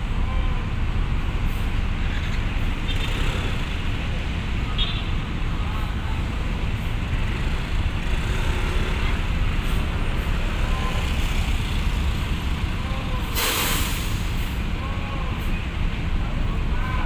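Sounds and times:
diesel bus engine rumbling: 0.0s - 17.0s
air brake hiss: 13.3s - 14.6s.

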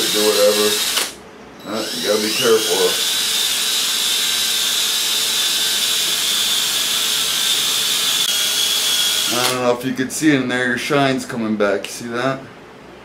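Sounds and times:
drill whining: 0.0s - 9.6s.

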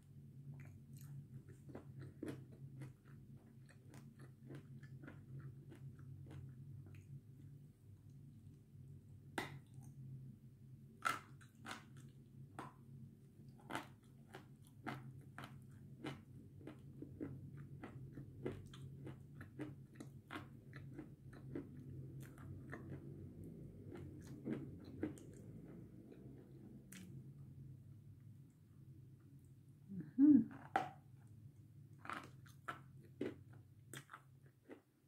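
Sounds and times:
low steady hum: 0.0s - 35.0s
chewing crunches: 0.6s - 7.1s, 13.6s - 27.2s, 32.0s - 34.9s.

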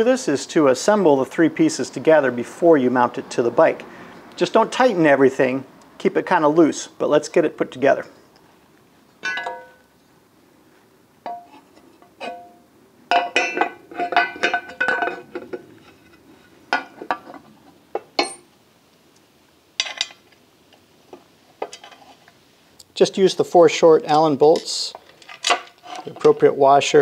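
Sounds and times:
metal parts clanking: 9.2s - 9.9s, 11.3s - 16.1s, 19.8s - 20.2s, 21.6s - 22.2s, 24.5s - 26.5s.

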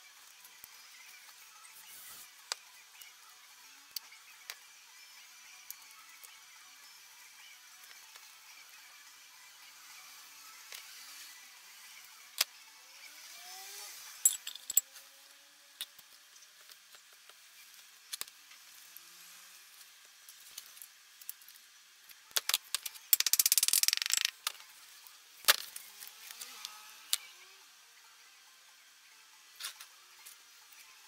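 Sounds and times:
metal hand tools clinking: 14.2s - 14.8s.

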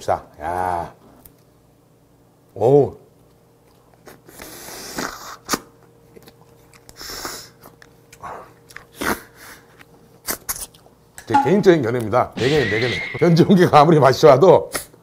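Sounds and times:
lip smacks and chewing clicks: 3.2s - 11.0s.

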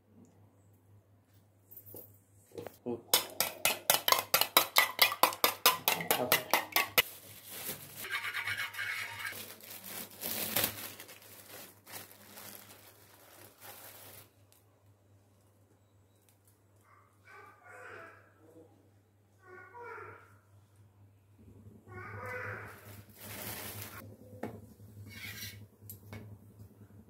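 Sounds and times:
spoon beating eggs in steel bowl: 3.1s - 7.0s, 8.0s - 9.4s
spoon scraping in glass jar: 8.0s - 9.4s, 25.1s - 25.6s.

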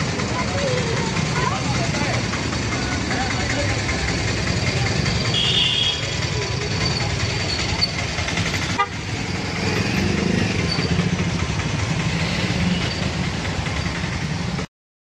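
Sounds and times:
scooters and cars passing: 0.0s - 14.7s
horns tooting: 5.0s - 8.0s, 8.6s - 10.9s.

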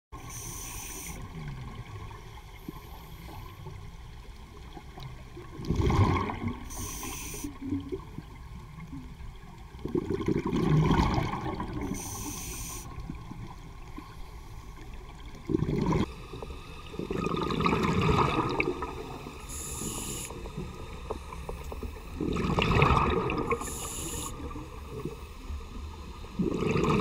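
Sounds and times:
regulator inhalation hiss: 0.2s - 1.2s, 6.7s - 7.6s, 11.9s - 13.0s, 19.2s - 22.1s, 23.6s - 24.5s
bubbles rushing: 5.6s - 6.6s, 9.8s - 11.9s, 15.4s - 16.1s, 17.0s - 19.2s, 22.2s - 23.7s, 26.4s - 27.0s.

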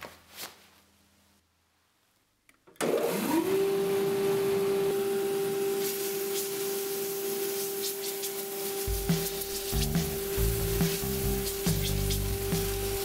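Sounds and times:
sander motor humming: 2.8s - 13.0s.

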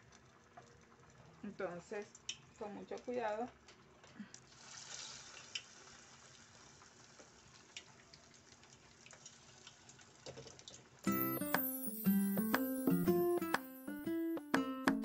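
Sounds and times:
small crackles and pops: 0.0s - 11.1s
oil sizzling: 0.0s - 14.6s.

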